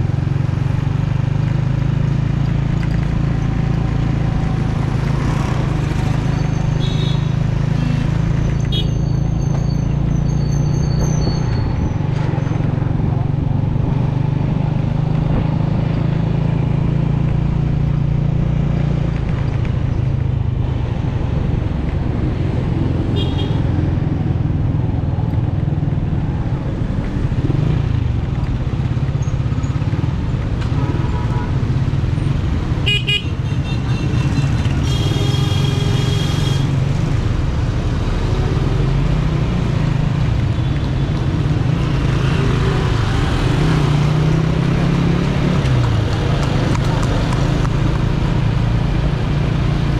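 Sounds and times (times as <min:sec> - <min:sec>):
vehicle horns honking: 0:06.8 - 0:08.0, 0:08.7 - 0:09.1, 0:23.2 - 0:23.6, 0:32.8 - 0:36.7.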